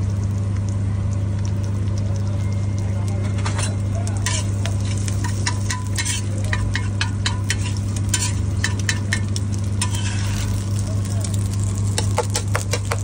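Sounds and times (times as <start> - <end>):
egg frying: 0.0 - 13.0
steady low hum: 0.0 - 13.0
metal spatula scraping griddle: 3.2 - 11.4.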